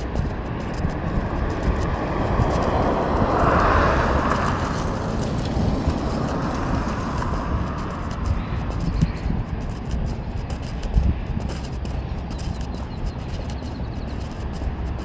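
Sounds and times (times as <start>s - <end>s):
low traffic rumble: 0.0s - 15.0s
vehicle passing: 0.0s - 15.0s.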